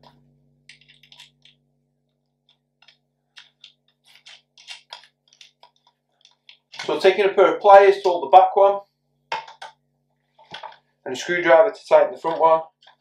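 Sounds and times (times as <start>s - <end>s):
faint steady low hum: 0.0s - 13.0s
faint metal clicks and taps: 2.4s - 6.9s.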